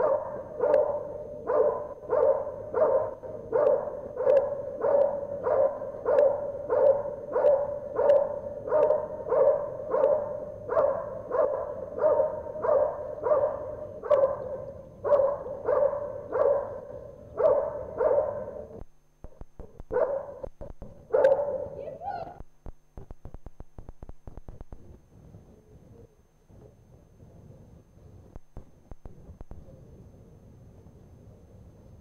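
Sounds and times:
dog barking rhythmically: 0:00.0 - 0:18.7, 0:19.9 - 0:20.5, 0:21.1 - 0:21.8.

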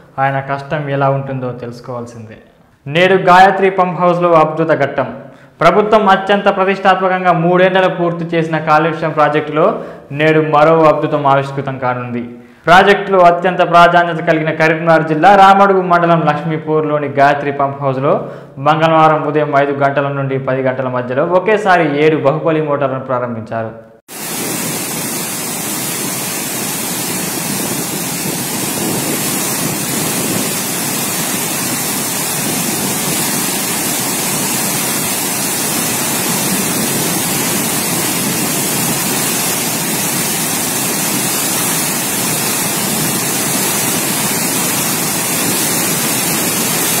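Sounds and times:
churning water rushing: 0:24.1 - 0:47.0.

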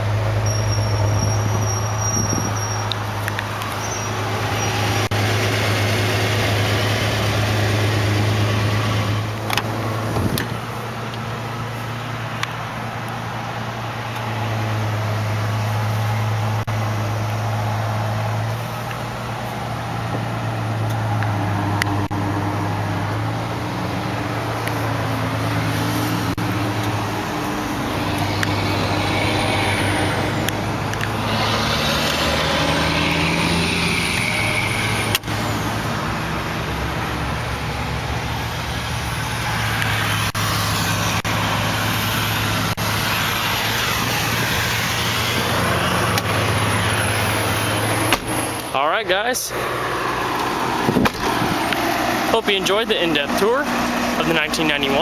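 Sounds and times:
wind noise on microphone: 0:01.0 - 0:02.8, 0:09.8 - 0:10.7, 0:50.8 - 0:51.6.

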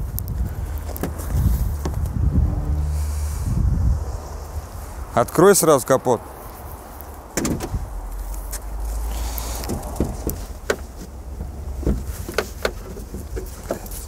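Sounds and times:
low rumble: 0:00.0 - 0:05.1
hood latch clicks and knocks: 0:07.3 - 0:07.8, 0:09.6 - 0:14.0.

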